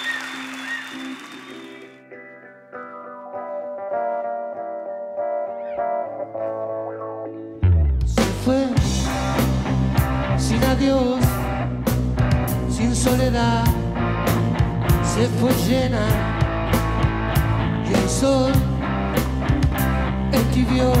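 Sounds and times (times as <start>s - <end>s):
electric guitar bending notes: 0.0s - 12.7s
rock band playing: 0.0s - 21.0s.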